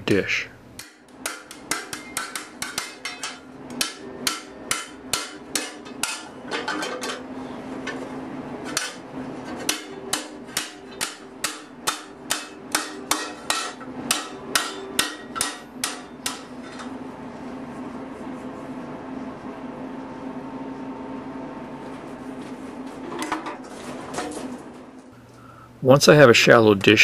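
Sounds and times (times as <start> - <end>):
metal ringing: 0.8 - 7.2, 9.6 - 17.0
hammer striking sheet steel: 0.8 - 8.0, 8.6 - 17.0.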